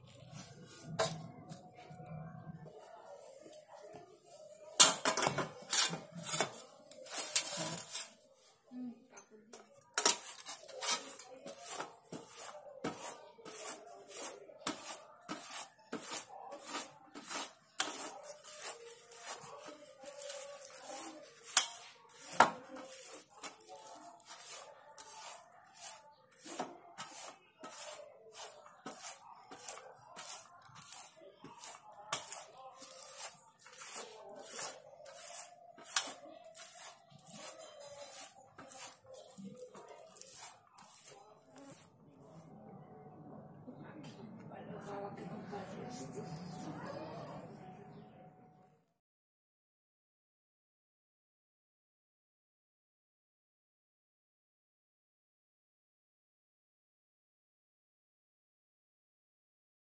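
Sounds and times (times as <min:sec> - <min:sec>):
fruit scraping against woven basket: 0:05.6 - 0:08.3, 0:09.9 - 0:41.9.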